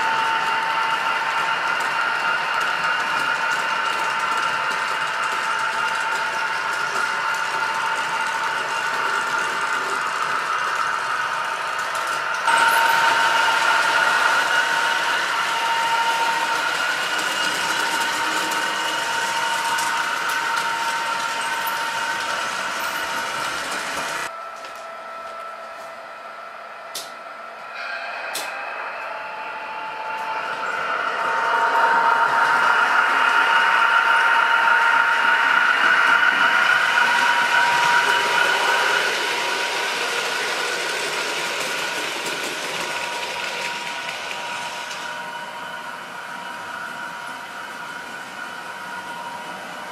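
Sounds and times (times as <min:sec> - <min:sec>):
wheels rattling on rail: 0:00.0 - 0:24.3, 0:30.1 - 0:49.9
electric motor whine: 0:12.3 - 0:25.5, 0:28.8 - 0:49.9.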